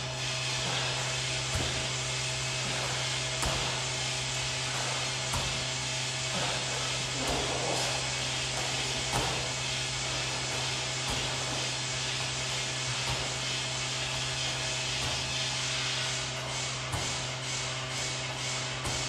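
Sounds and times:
constant low hum: 0.0 - 19.0
whooshing machine noise: 0.0 - 19.0
ball thudding against wall: 5.3 - 5.8, 8.5 - 9.6, 10.4 - 11.6, 14.5 - 15.4, 16.9 - 17.3.

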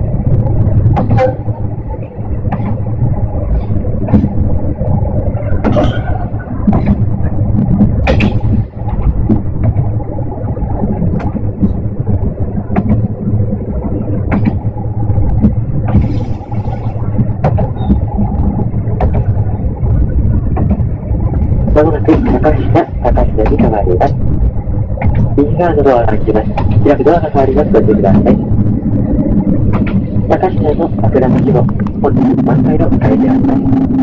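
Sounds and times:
railcar engine and running rumble: 0.0 - 34.0
sharp clicks and knocks: 2.5 - 2.9, 4.0 - 5.0, 5.6 - 9.9, 11.0 - 13.1, 14.2 - 16.2, 17.2 - 24.2, 25.0 - 25.4, 29.4 - 32.0.

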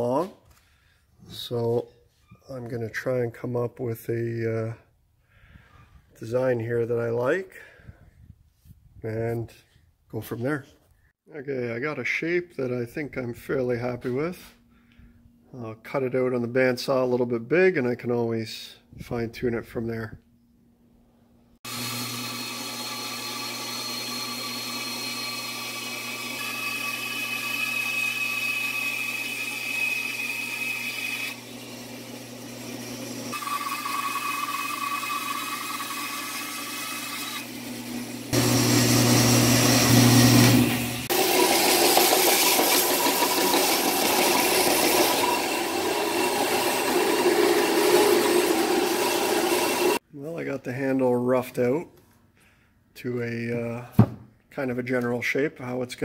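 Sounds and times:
bandsaw motor hum: 21.7 - 50.0
power tool rasping: 21.7 - 50.0.

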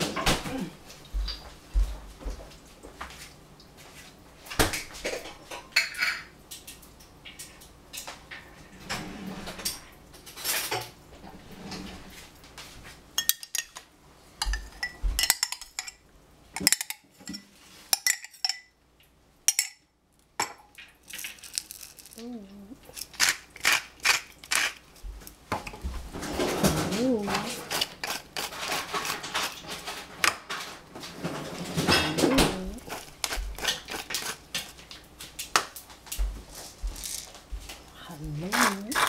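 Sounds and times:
dishes and cutlery clinking: 5.0 - 6.4, 13.2 - 16.0, 16.6 - 18.7, 25.6 - 34.7.

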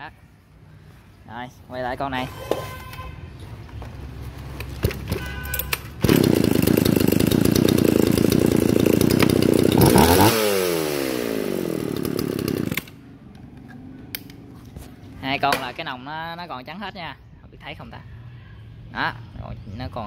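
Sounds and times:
chainsaw pull-start clicks: 4.7 - 13.0
chainsaw engine running: 6.0 - 13.0.

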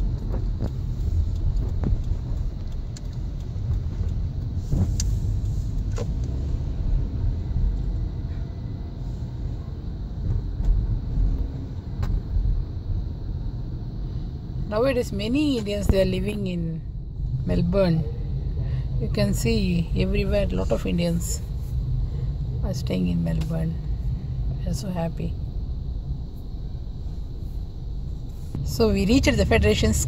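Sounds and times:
car engine and tyres rumbling: 0.0 - 30.0
faint clicks: 0.1 - 6.4.

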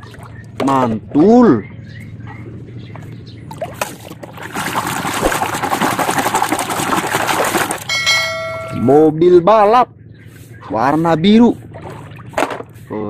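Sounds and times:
water sloshing and splashing: 0.0 - 1.7, 2.8 - 8.8, 11.5 - 12.9.

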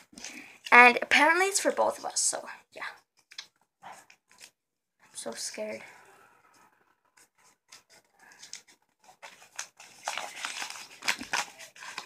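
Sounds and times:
wrapping crackling and rustling: 6.5 - 12.0.

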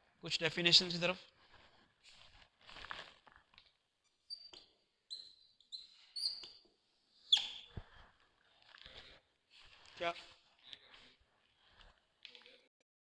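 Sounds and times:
marker squeaking on whiteboard: 4.1 - 8.0.

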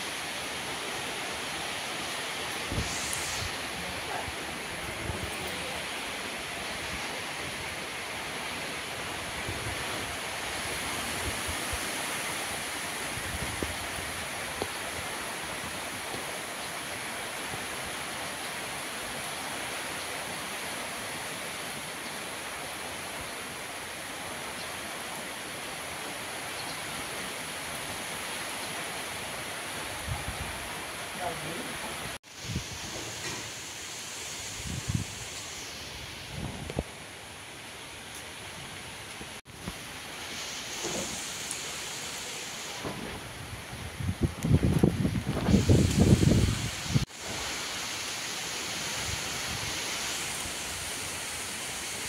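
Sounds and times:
rain hissing: 0.0 - 52.0
wind gusts on microphone: 1.6 - 16.0, 29.8 - 30.8, 31.8 - 33.5, 34.3 - 37.1, 42.8 - 47.8.

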